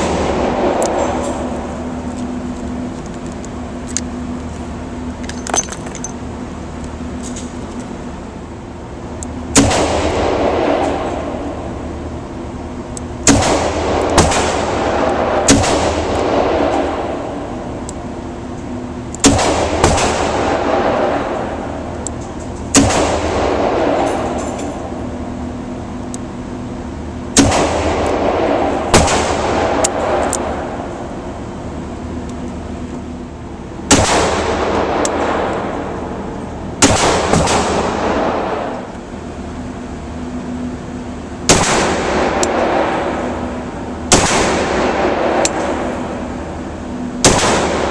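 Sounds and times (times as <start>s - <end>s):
pistol gunshots: 9.5s - 10.9s, 13.2s - 17.0s, 19.2s - 21.2s, 22.7s - 24.1s, 27.4s - 30.3s, 33.9s - 35.6s, 36.8s - 38.7s, 41.5s - 43.2s, 44.1s - 45.9s, 47.2s - 47.9s
revolver gunshots echoing: 9.5s - 11.5s, 13.2s - 17.4s, 19.2s - 21.7s, 22.7s - 24.4s, 27.3s - 30.8s, 33.9s - 35.9s, 36.8s - 38.9s, 41.4s - 46.4s, 47.2s - 47.9s.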